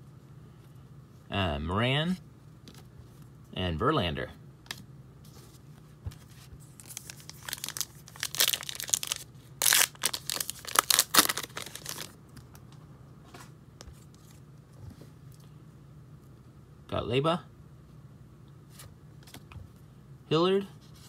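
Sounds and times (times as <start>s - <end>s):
handling of cards: 4.7s - 15.4s, 18.7s - 19.8s
foil wrapper tearing and crinkling: 6.7s - 12.2s.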